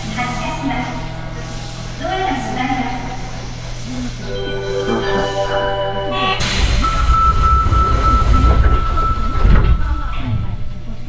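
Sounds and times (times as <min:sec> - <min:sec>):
high inverter whine: 0:03.6 - 0:09.7
electronic chime: 0:04.2 - 0:09.3
sudden rush of noise: 0:04.2 - 0:09.6
train running gear rumble: 0:06.4 - 0:11.0.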